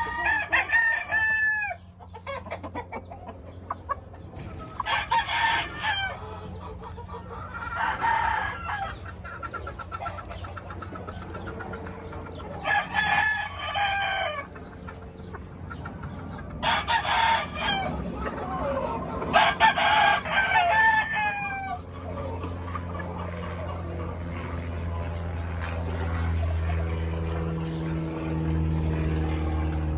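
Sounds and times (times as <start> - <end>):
roosters crowing: 0.0 - 29.9
soft clucking: 2.0 - 4.6.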